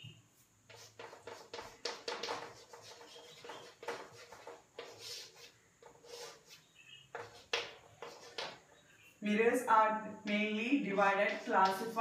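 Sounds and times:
chalk scratching on chalkboard: 0.4 - 8.7, 10.8 - 12.0.

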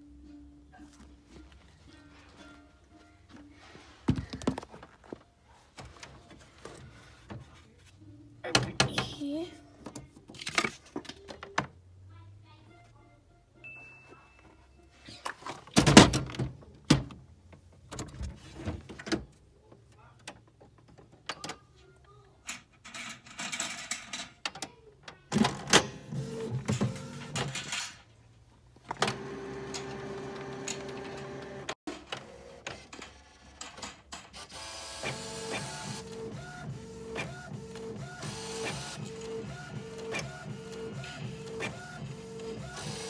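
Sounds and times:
inkjet printer whirring: 25.3 - 27.6, 28.9 - 32.9, 34.4 - 43.0.

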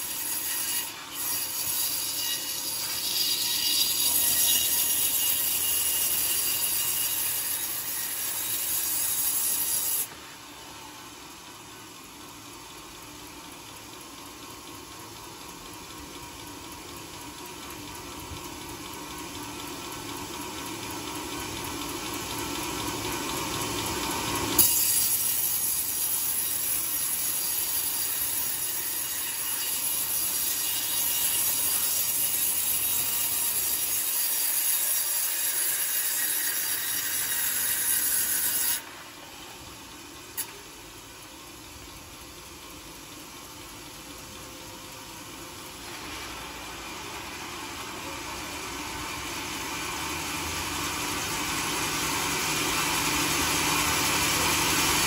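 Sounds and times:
band saw cutting log: 0.0 - 10.4, 24.5 - 40.7.

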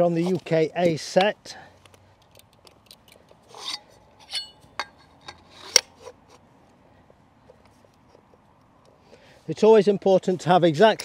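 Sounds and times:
metal adapters clinking: 0.2 - 6.3.

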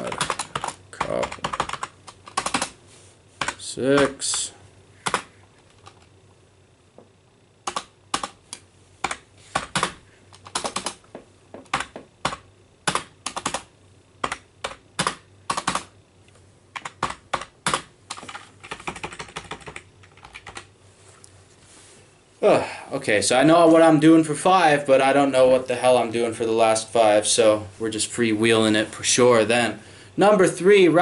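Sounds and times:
computer keyboard typing: 0.0 - 2.8, 3.4 - 4.4, 5.0 - 6.1, 7.6 - 8.4, 9.0 - 11.0, 11.6 - 15.9, 16.7 - 20.7.

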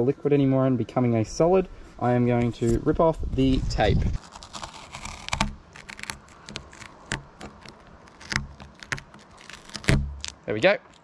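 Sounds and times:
tape peeling and crumpling: 3.4 - 11.0.

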